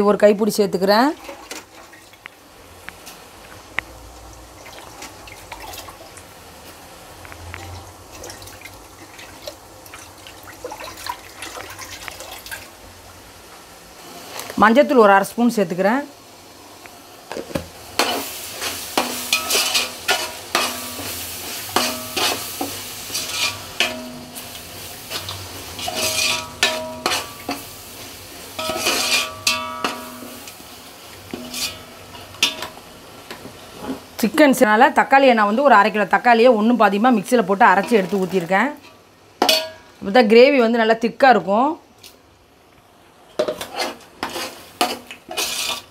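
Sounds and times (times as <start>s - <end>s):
hot oil sizzling: 1.3s - 40.1s, 43.4s - 45.9s
ladle stirring gravy in a pot: 18.0s - 24.1s, 25.1s - 27.7s, 28.6s - 30.2s, 43.4s - 45.9s
ladle striking ringing pot: 19.0s - 19.8s, 21.8s - 22.4s, 23.8s - 24.4s, 25.9s - 27.6s, 28.6s - 30.5s.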